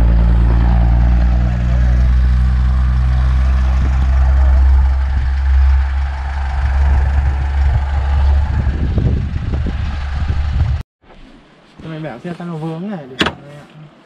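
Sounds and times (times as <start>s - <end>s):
truck engine idling: 0.0s - 10.8s.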